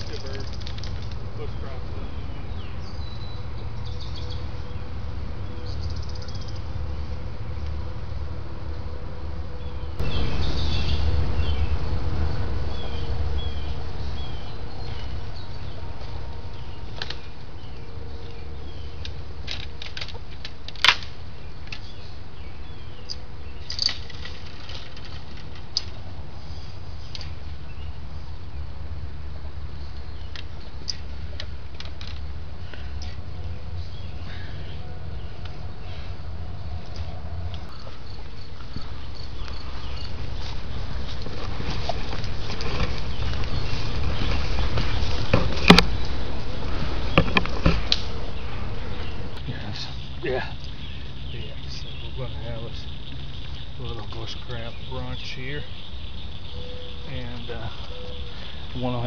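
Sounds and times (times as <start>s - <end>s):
faint insect chirps: 5.6s - 6.7s, 37.0s - 40.5s
low rumble: 6.5s - 16.8s
rustling through brush: 35.2s - 58.8s.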